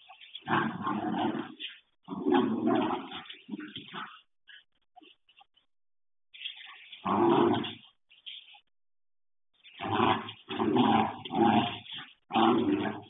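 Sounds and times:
dog growling: 0.4s - 4.6s, 7.0s - 7.9s, 9.7s - 13.0s.

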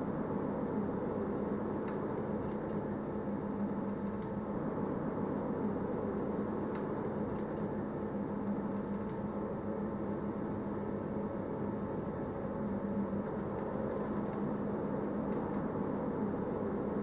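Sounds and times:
train rumble from inside carriage: 0.0s - 17.0s
faint ticks: 6.7s - 7.7s.

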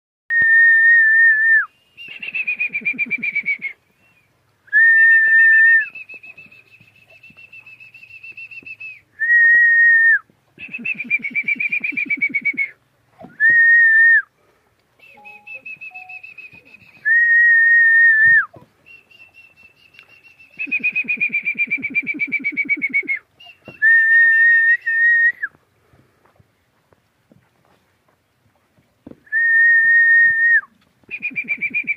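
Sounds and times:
person whistling: 4.7s - 12.7s, 15.0s - 25.5s, 29.3s - 31.9s.

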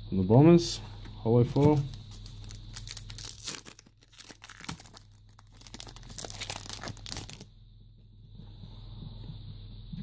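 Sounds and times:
wrapper crinkling and tearing: 1.6s - 7.5s.

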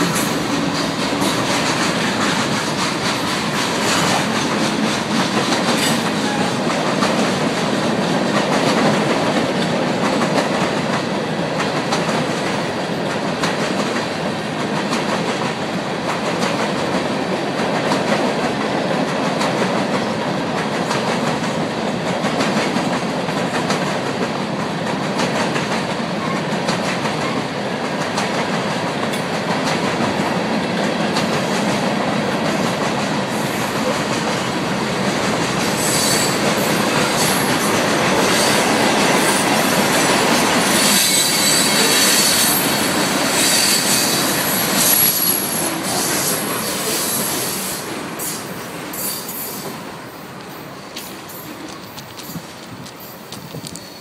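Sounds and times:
steel wheels on rails: 0.0s - 54.0s
high wheel squeal: 35.7s - 37.6s, 40.6s - 49.8s.

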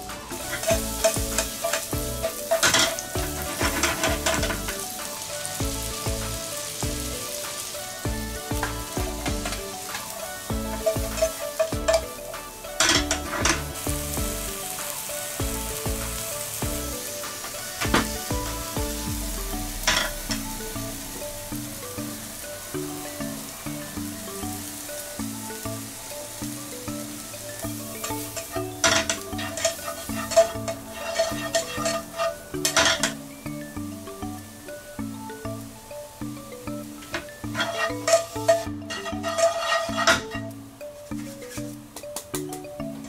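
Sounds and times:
vegetables sizzling in butter: 0.0s - 33.7s, 34.6s - 41.8s
tongs scraping and clicking on pan: 0.2s - 5.6s, 6.2s - 18.7s, 27.6s - 33.2s, 37.0s - 40.6s.

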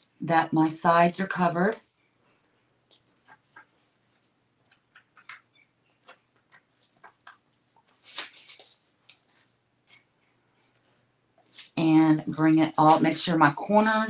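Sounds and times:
plastic sheeting rustle: 7.9s - 8.8s.

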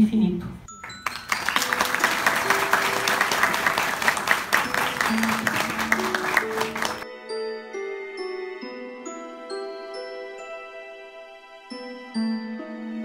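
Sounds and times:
audience applauding: 0.7s - 7.0s.

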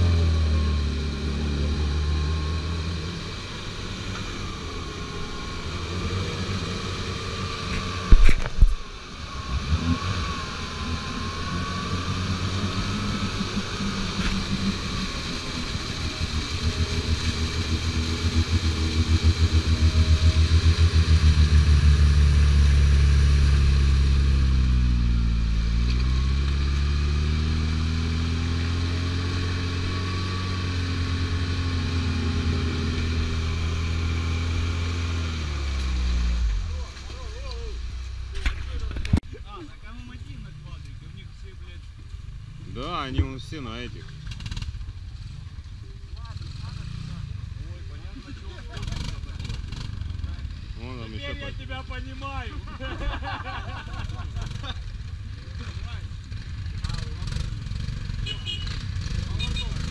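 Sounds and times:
wheels spinning in mud: 0.0s - 59.9s
engine revving hard: 9.2s - 36.8s, 56.8s - 59.9s.

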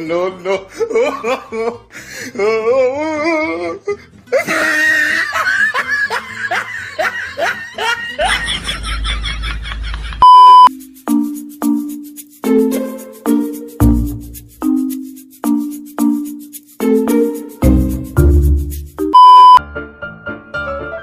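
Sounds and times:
laughter in bursts: 0.4s - 1.9s, 4.3s - 10.2s
loud beep: 10.2s - 10.7s, 19.2s - 19.6s
bouncy tune: 10.2s - 19.6s.

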